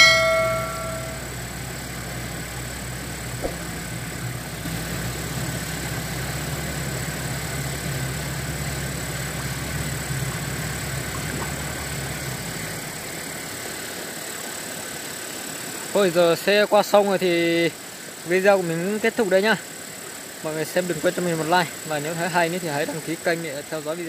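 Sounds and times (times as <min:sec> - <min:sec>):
tractor diesel engine running: 0:00.0 - 0:16.5.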